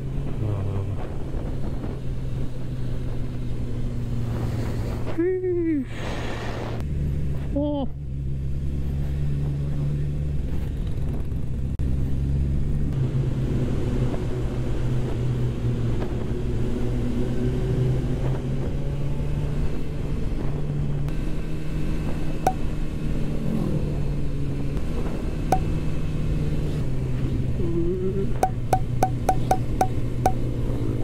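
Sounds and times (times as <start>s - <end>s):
road noise: 0.0s - 31.0s
motorcycle engine running: 25.5s - 26.1s, 28.4s - 31.0s.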